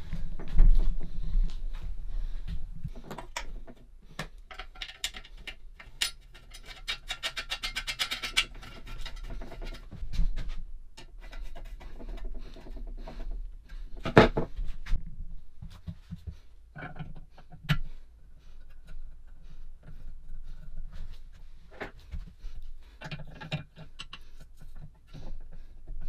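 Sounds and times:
metal parts clicking and scraping: 3.0 - 9.9, 23.0 - 26.0.

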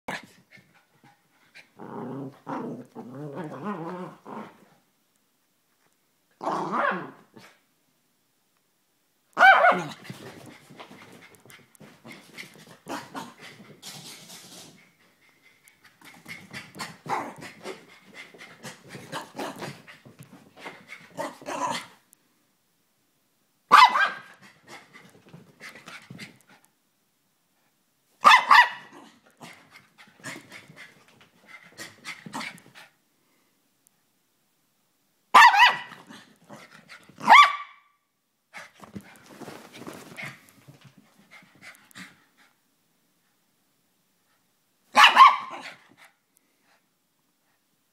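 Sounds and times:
small dog barking: 9.4 - 10.0, 23.7 - 24.3, 28.2 - 29.1, 35.3 - 36.0, 37.2 - 37.9, 44.9 - 45.8
dog panting: 10.1 - 21.1, 40.0 - 42.6.

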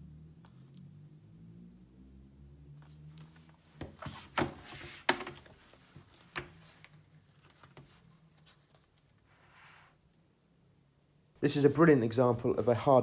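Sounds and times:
book pages riffled by hand: 2.8 - 9.9.

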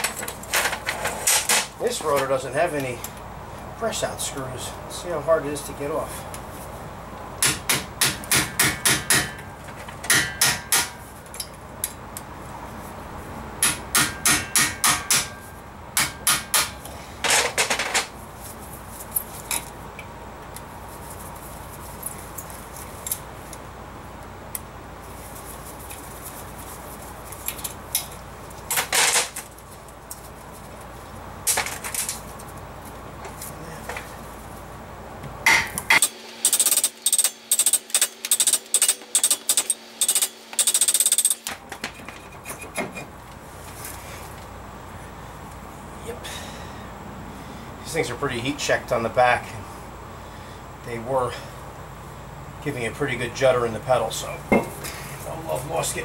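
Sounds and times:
hammer striking steel brake disc: 7.4 - 11.5, 13.6 - 17.5, 35.4 - 36.1.

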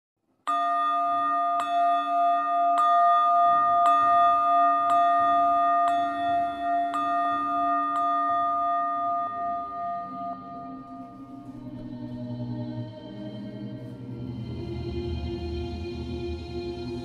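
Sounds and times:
metal bell struck with mallet: 0.5 - 11.4.

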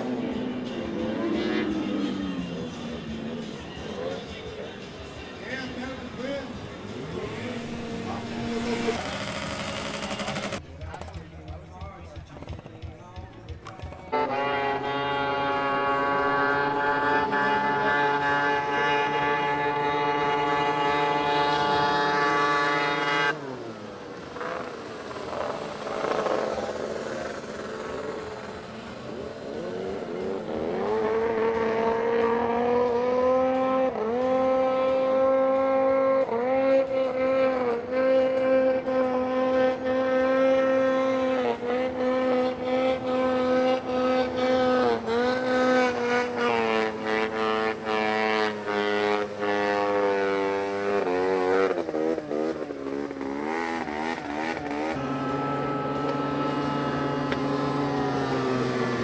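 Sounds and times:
snowmobile engine revving: 5.5 - 10.6, 14.0 - 59.0.

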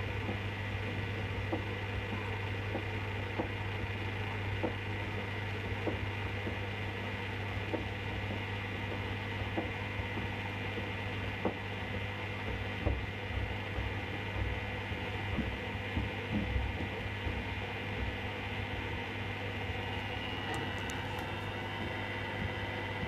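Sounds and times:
washing machine motor hum: 0.0 - 23.0.

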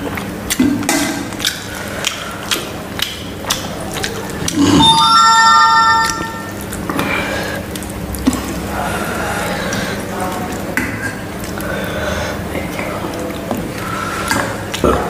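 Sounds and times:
bell-like metallic ringing: 4.8 - 6.7.

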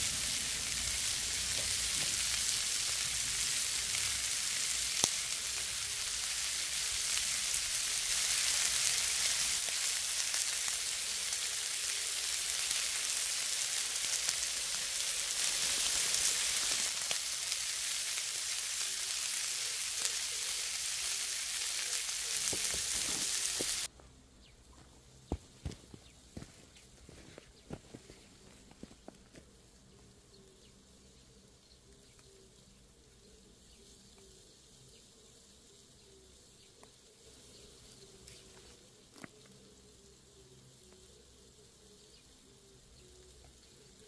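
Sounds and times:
meat sizzling on a griddle: 0.0 - 23.9.

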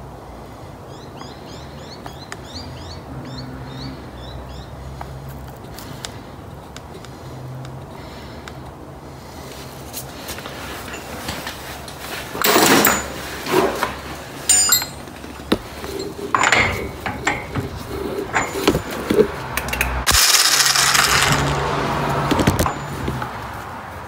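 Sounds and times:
metallic clinks and scrapes: 10.0 - 21.6
loud metal clattering: 12.4 - 19.3.

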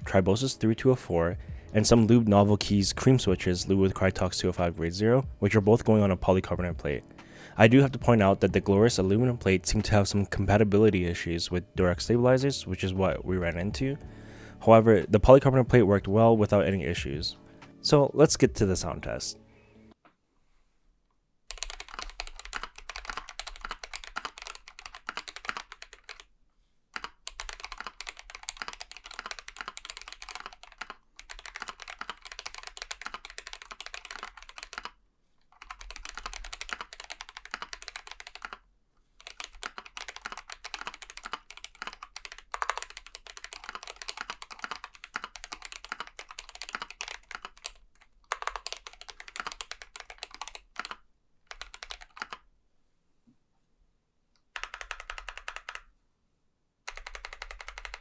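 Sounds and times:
mechanical keyboard typing: 21.5 - 26.3, 27.0 - 35.0, 35.6 - 38.6, 39.2 - 52.4, 54.5 - 55.9, 56.9 - 58.0.

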